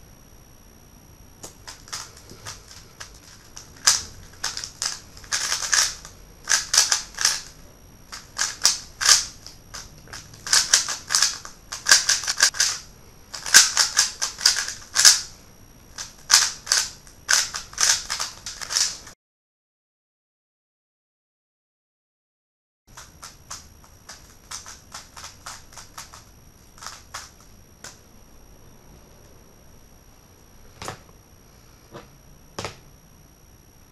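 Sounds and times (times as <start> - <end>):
puzzle cube plastic clacking: 1.4 - 15.3, 16.0 - 19.1, 22.9 - 28.0.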